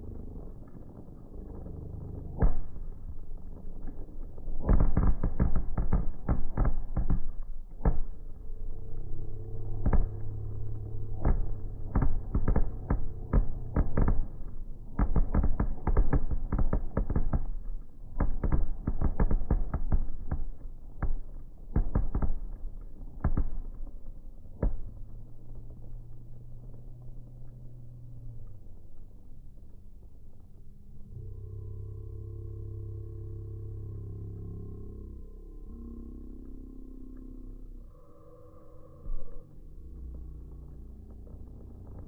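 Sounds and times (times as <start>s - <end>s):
fireworks booming and cracking: 0.0s - 27.8s, 39.8s - 42.0s.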